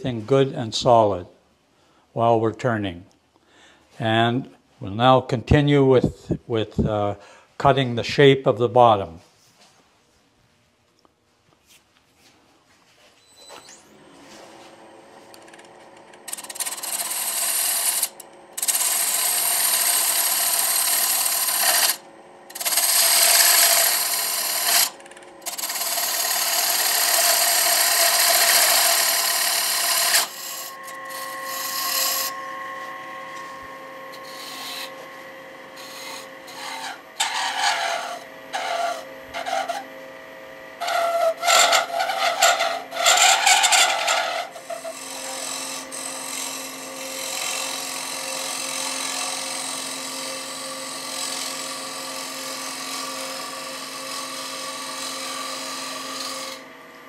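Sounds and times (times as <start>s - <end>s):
turning tool cutting wood: 13.8s - 56.8s
wood lathe humming: 13.9s - 57.0s.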